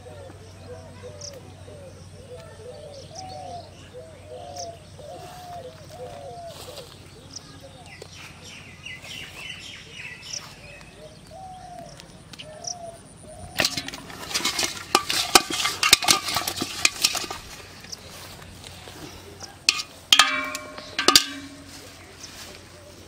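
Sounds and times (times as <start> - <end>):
fish flapping in a metal pot: 13.5 - 18.3, 19.6 - 22.0
metal pot ringing clank: 13.6 - 17.9, 19.7 - 22.0.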